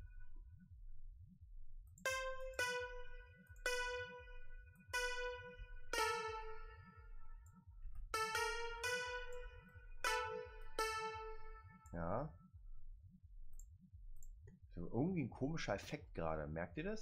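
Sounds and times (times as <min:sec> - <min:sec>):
electric piano synth notes: 0:08.2 - 0:11.6.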